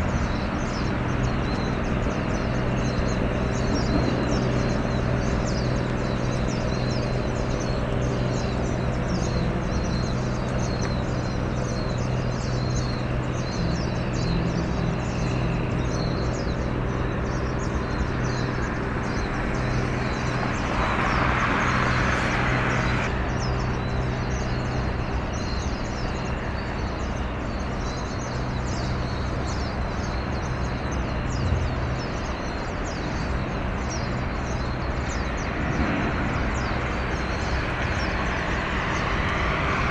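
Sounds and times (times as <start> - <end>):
low engine hum: 0.0 - 39.9.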